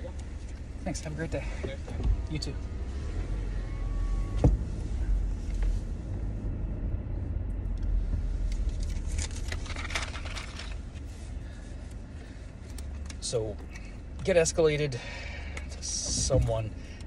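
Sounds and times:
car cabin rumble: 0.0s - 17.0s
thump: 4.3s - 4.7s
clicking and rustling: 8.5s - 11.1s.

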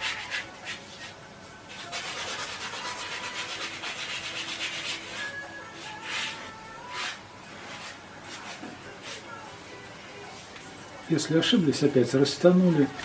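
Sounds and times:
paintbrush rubbing on canvas: 0.0s - 9.3s.

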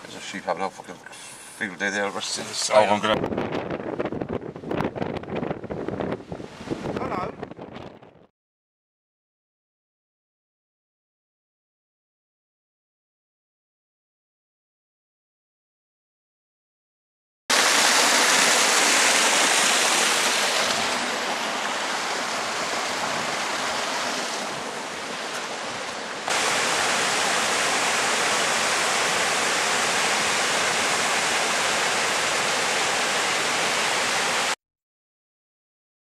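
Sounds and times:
steady rushing noise: 17.5s - 34.6s
waterfall and stream rushing: 17.5s - 34.6s.

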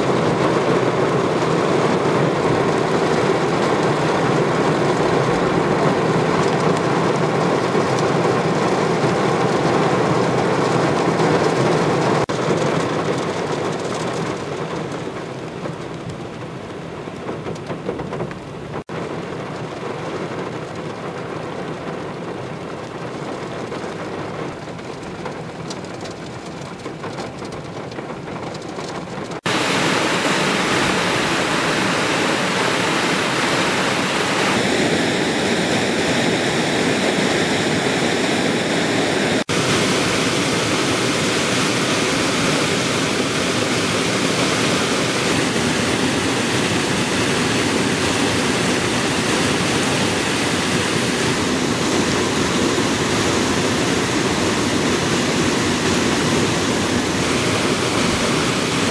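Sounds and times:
water rushing over rocks: 0.0s - 15.2s, 29.4s - 58.9s.

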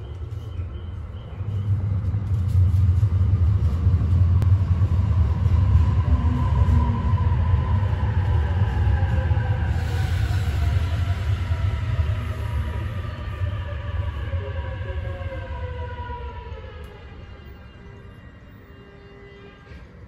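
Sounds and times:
train rumble: 0.0s - 20.0s
train whine: 0.0s - 20.0s.

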